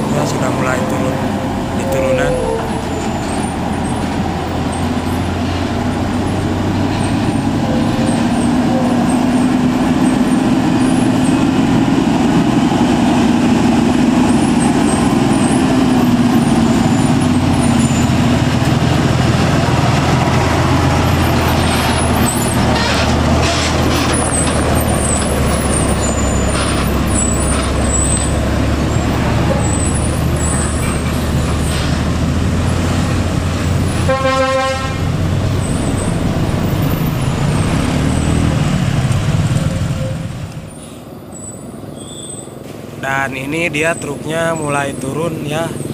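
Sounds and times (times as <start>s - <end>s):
truck diesel engine running: 0.0s - 45.9s
tyre and road noise: 0.0s - 45.9s
truck horn toot: 22.7s - 24.0s, 34.0s - 35.1s.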